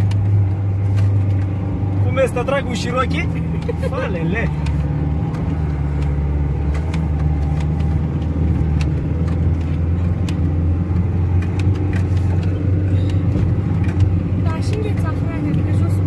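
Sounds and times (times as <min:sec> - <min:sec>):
engine running under load: 0:00.0 - 0:16.0
sharp ticks and knocks: 0:04.5 - 0:15.8.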